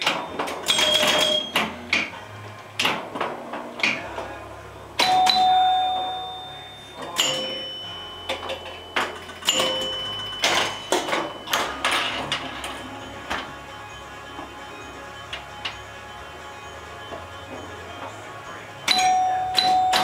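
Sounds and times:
pinball machine clacks: 0.0s - 2.2s, 2.8s - 4.4s, 5.0s - 13.6s, 17.1s - 20.0s
pinball chime tones: 0.0s - 3.2s, 5.0s - 20.0s.

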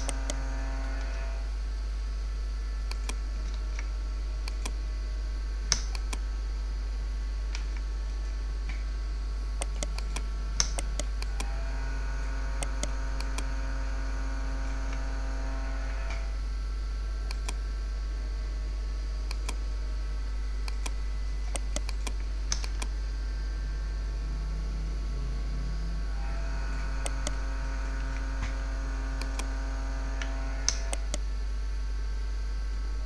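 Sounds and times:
computer mouse clicks: 0.0s - 1.2s, 2.9s - 3.8s, 4.4s - 4.8s, 5.7s - 6.3s, 9.6s - 11.6s, 12.6s - 13.5s, 17.3s - 17.6s, 19.3s - 19.6s, 20.6s - 22.9s, 27.0s - 27.4s, 29.2s - 29.5s, 30.2s - 31.2s
low electrical hum: 0.0s - 33.0s.

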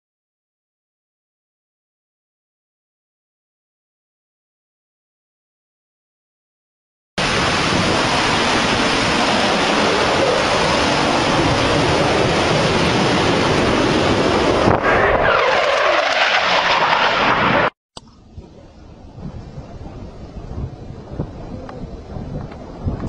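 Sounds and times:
jet flying low past: 7.2s - 23.0s.

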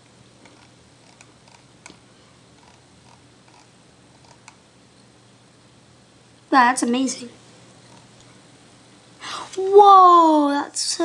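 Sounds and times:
low steady hum: 0.0s - 11.0s
computer mouse clicks: 0.4s - 2.0s, 2.6s - 4.6s.

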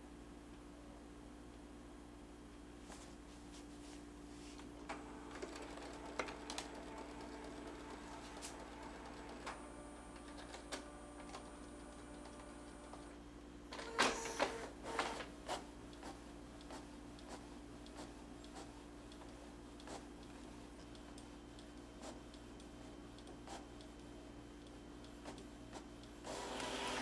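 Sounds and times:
printer motors whirring: 4.8s - 20.4s, 25.1s - 27.0s
printer clicking and clattering: 4.9s - 13.1s, 13.8s - 17.4s.

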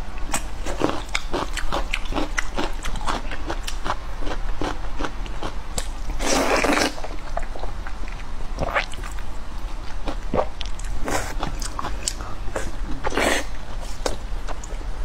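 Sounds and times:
slurping and chewing noodles: 6.1s - 9.2s.

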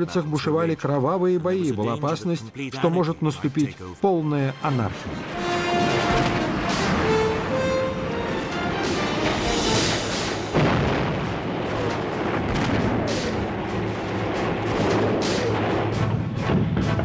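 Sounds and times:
music: 0.0s - 17.0s
loud boom: 9.0s - 17.0s
gunshots and blasts: 9.7s - 17.0s.

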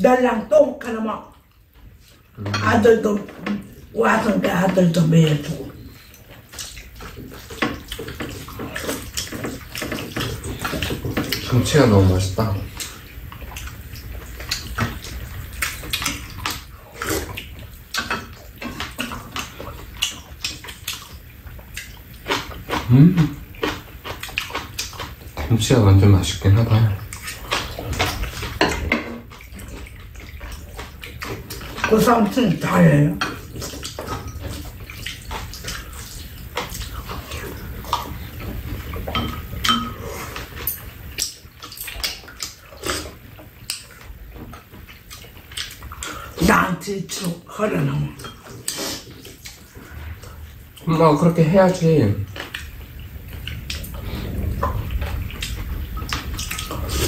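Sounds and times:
eating noises: 1.2s - 57.0s
wet chewing smacks: 4.6s - 11.7s, 12.4s - 25.6s, 26.7s - 46.4s, 48.0s - 50.9s, 51.7s - 57.0s
utensils clicking against bowls: 36.6s - 43.0s
low hum: 52.2s - 57.0s.

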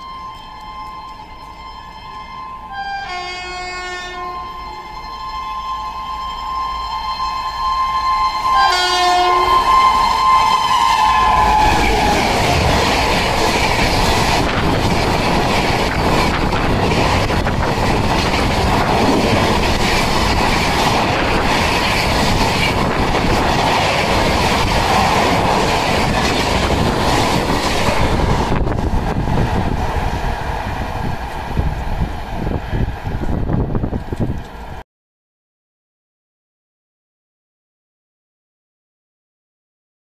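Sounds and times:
train horn: 0.0s - 12.9s
train coaches rumbling past: 0.0s - 34.8s.

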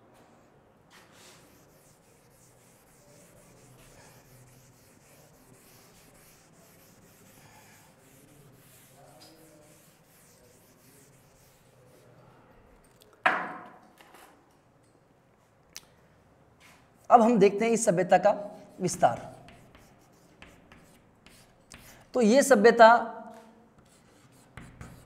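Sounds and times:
duster rubbing on chalkboard: 1.2s - 12.1s, 18.7s - 22.1s, 23.8s - 25.0s.

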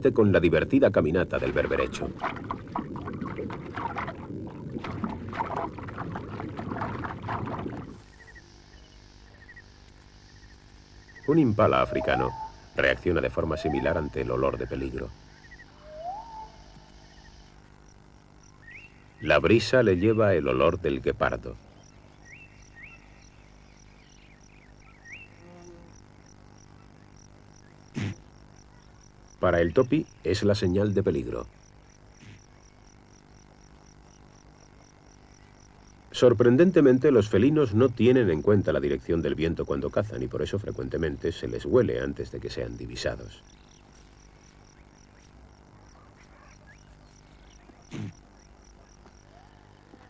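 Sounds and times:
insect chirping: 0.0s - 50.0s
water sloshing and swishing: 1.4s - 8.0s.

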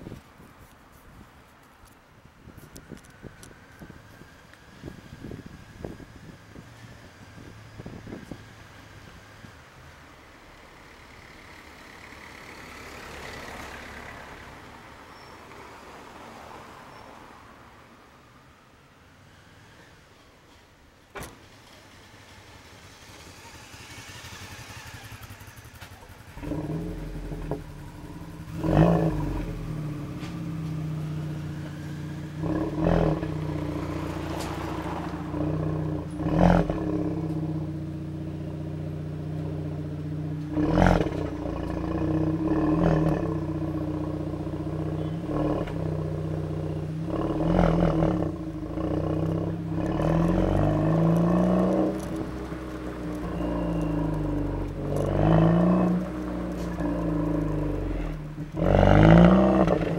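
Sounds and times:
motorcycle engine idling and revving: 2.7s - 15.3s, 21.3s - 59.9s
motorcycle passing: 22.0s - 59.9s.

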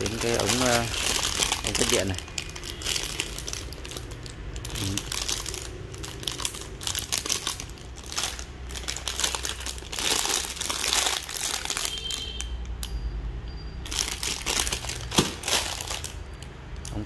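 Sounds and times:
plastic bag crinkling: 0.0s - 12.4s, 13.8s - 16.3s.

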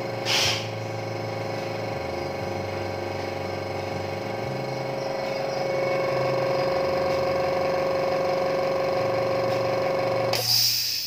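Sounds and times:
air compressor humming and whining: 0.0s - 11.0s.

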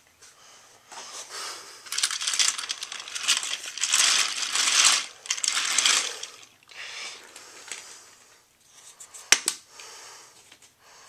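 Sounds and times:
toy train rattling on plastic track: 1.9s - 6.9s.

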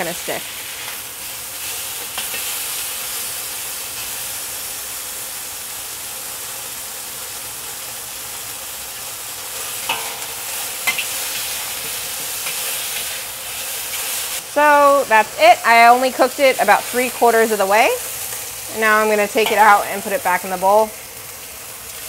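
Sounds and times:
meat sizzling in hot oil: 0.0s - 22.0s
spatula clinking against wok: 9.9s - 11.0s.

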